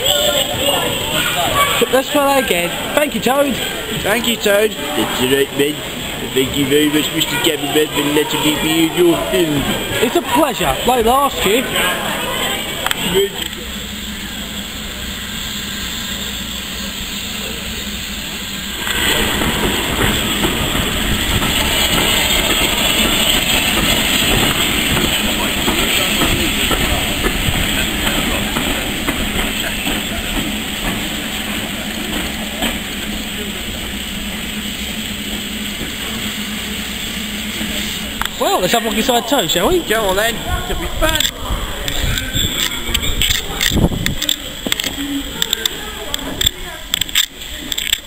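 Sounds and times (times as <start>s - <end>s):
steam hissing: 0.0s - 48.0s.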